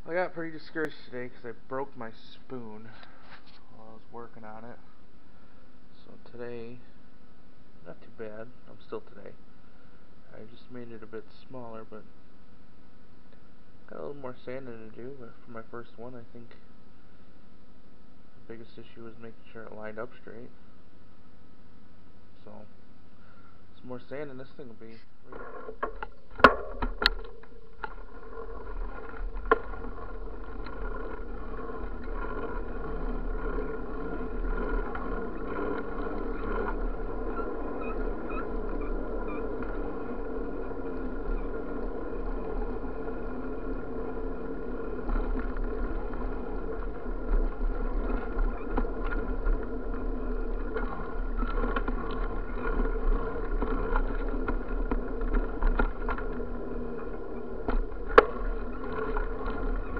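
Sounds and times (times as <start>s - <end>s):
bicycle rolling on pavement: 0.0s - 3.5s, 25.3s - 59.9s.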